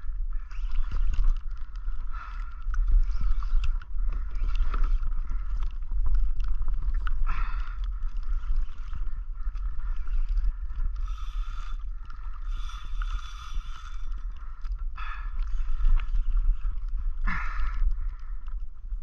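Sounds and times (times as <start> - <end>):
wind rumbling on microphone: 0.0 - 19.0
fishing reel whirring and clicking: 9.6 - 14.4.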